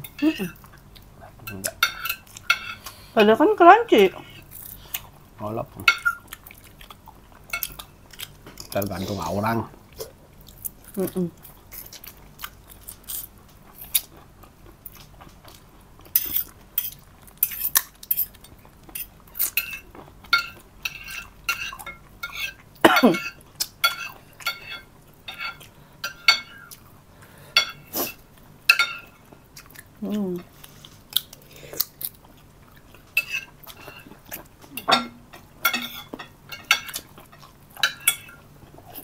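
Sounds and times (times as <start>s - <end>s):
cutlery clinking on a plate: 1.5s - 2.8s, 19.0s - 26.7s, 27.6s - 27.9s, 28.7s - 29.2s, 34.8s - 38.4s.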